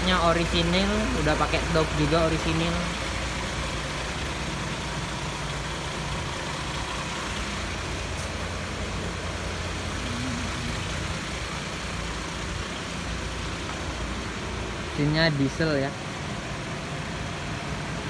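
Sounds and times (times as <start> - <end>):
diesel engine idling: 0.0 - 18.0.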